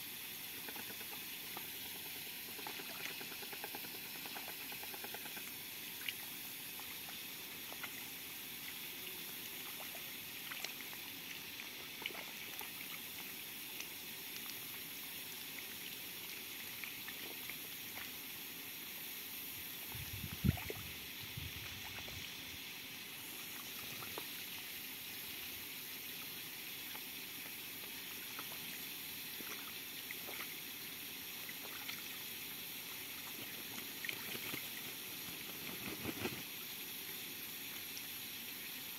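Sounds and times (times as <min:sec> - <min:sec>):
water splashing and dripping: 0:32.9 - 0:36.5.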